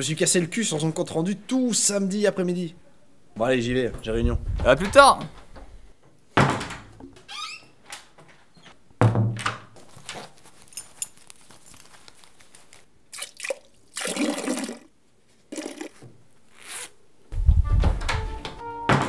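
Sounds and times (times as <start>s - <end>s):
water splashing into toilet: 13.1s - 14.9s, 15.5s - 16.0s.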